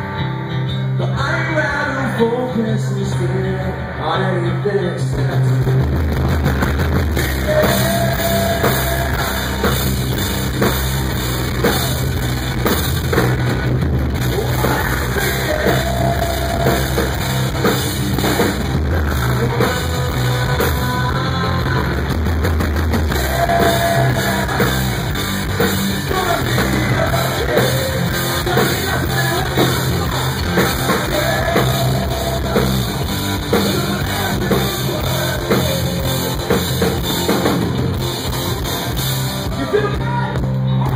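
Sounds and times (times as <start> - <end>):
bass guitar: 0.0 - 40.9
electric guitar: 0.0 - 40.9
drum kit: 5.0 - 40.9
person singing: 7.1 - 10.0, 14.2 - 17.6, 18.3 - 22.2, 22.9 - 37.6.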